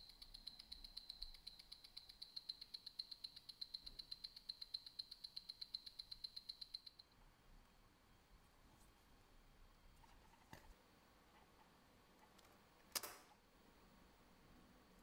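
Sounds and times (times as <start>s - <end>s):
watch ticking rapidly: 0.0s - 7.0s.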